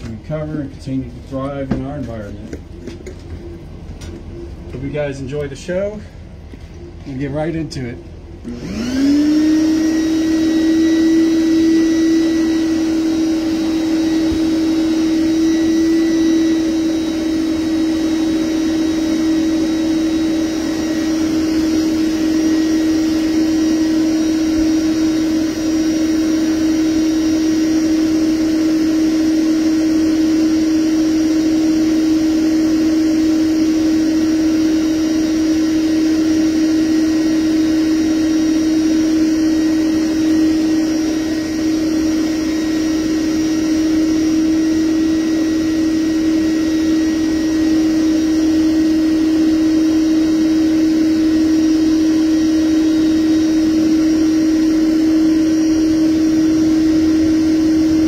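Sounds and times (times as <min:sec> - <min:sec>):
bee vacuum humming: 0:00.0 - 0:58.0.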